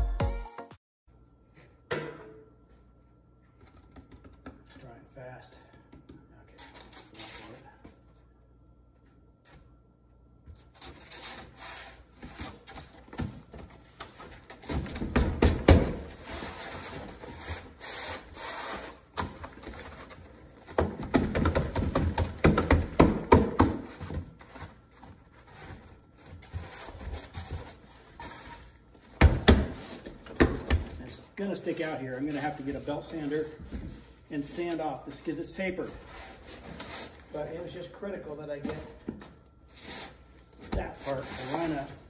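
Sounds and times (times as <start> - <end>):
foam board scraping against frame: 39.7 - 42.0.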